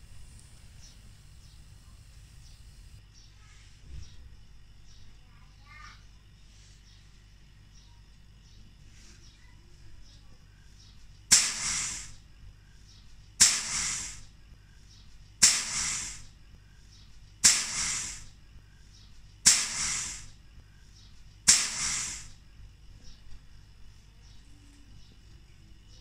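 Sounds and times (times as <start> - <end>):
hissing spurts of air: 0.0 - 3.0, 11.3 - 12.2, 13.4 - 14.4, 15.4 - 16.4, 17.4 - 18.4, 19.4 - 20.4, 21.5 - 22.4.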